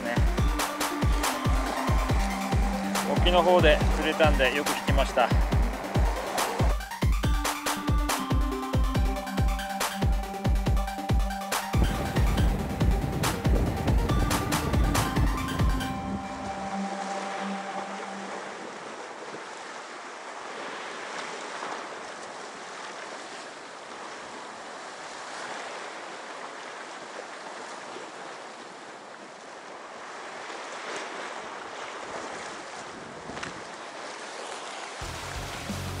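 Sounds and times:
sea waves on rocky shore: 0.0s - 10.9s, 11.5s - 36.0s
music: 0.0s - 18.8s, 35.0s - 36.0s.

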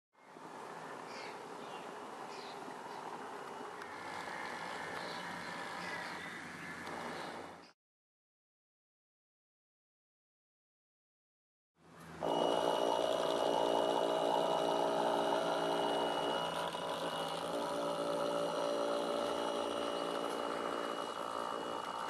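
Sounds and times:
model boat motor humming: 2.9s - 7.6s, 12.1s - 22.0s.

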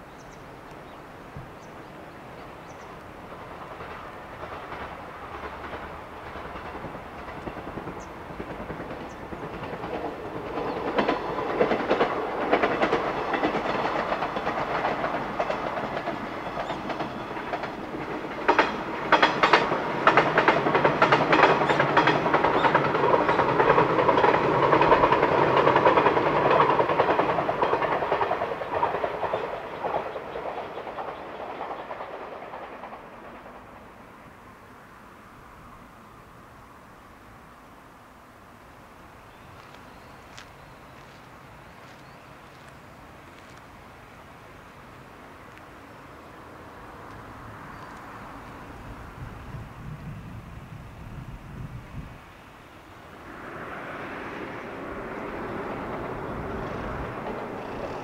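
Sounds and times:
train passing: 0.0s - 58.0s
wheels clattering over rail joints: 3.5s - 33.7s.

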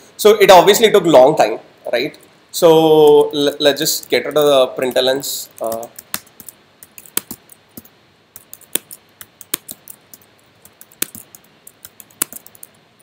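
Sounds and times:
typing on computer keyboard: 4.4s - 12.8s.

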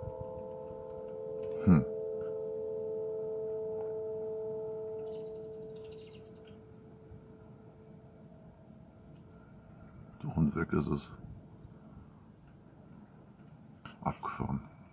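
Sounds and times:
bird chirping: 0.0s - 7.8s, 8.9s - 10.3s, 11.3s - 13.3s
chord-like drone from the sky: 0.0s - 10.1s.

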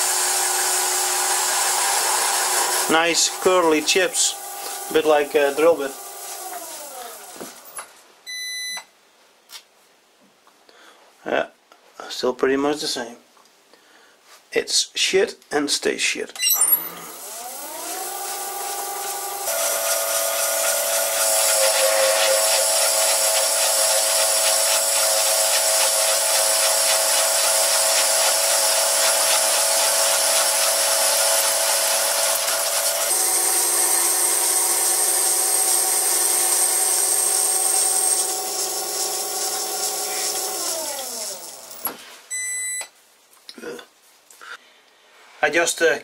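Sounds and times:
lathe motor whine: 0.0s - 7.8s, 17.0s - 41.9s
lathe winding down: 0.0s - 7.8s, 16.6s - 41.9s.

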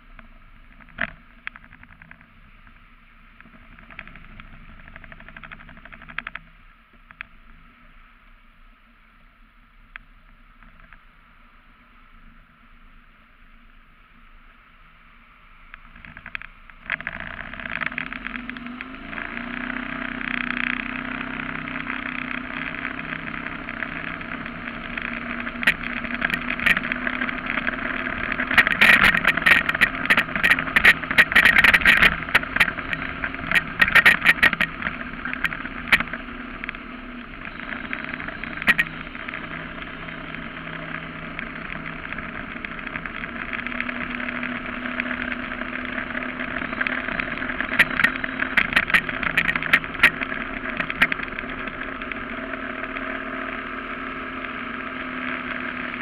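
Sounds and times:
boat engine drone: 0.0s - 56.0s
wind: 0.0s - 56.0s
sharp knocks and rattles: 3.4s - 6.5s, 21.8s - 52.6s.

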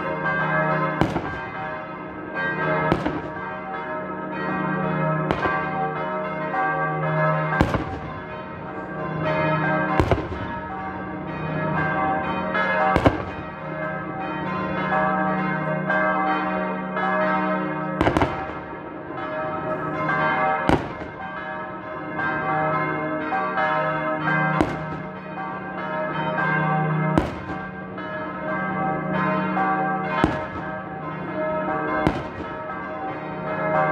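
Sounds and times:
church bells ringing: 0.0s - 33.9s
black-powder gunshots booming: 2.9s - 3.3s, 32.0s - 32.5s.

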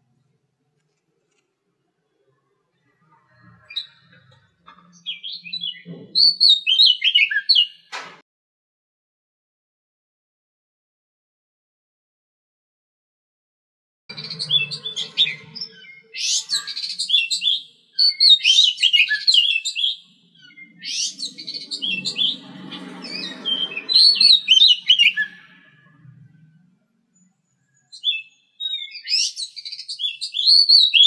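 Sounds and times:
bird singing: 2.1s - 7.9s, 14.1s - 31.0s.

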